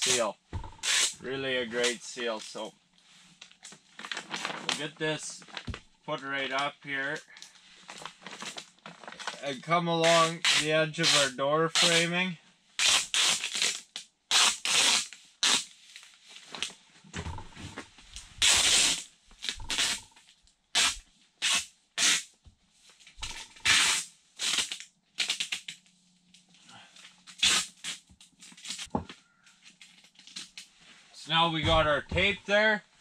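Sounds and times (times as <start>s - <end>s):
tape ripping off roll: 0.8s - 1.2s, 7.9s - 12.0s, 12.8s - 15.7s, 18.4s - 20.0s, 20.7s - 22.3s, 23.3s - 25.8s, 27.2s - 29.0s
plastic sheeting crinkling: 1.7s - 12.0s.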